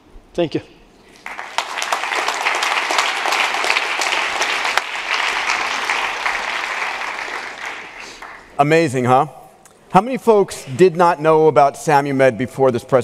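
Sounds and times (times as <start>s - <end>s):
audience applauding: 1.2s - 8.6s.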